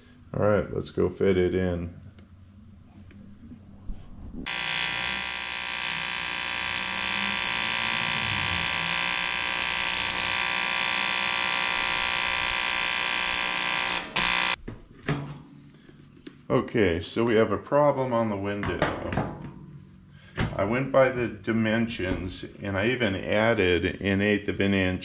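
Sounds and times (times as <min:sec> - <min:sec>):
welding arc buzzing: 0:04.4 - 0:14.6.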